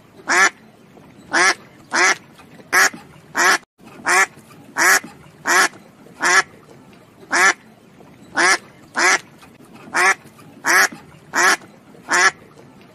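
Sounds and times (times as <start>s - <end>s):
duck quacking: 0.3s - 0.6s, 1.3s - 6.5s, 7.3s - 7.6s, 8.4s - 9.3s, 9.9s - 12.4s.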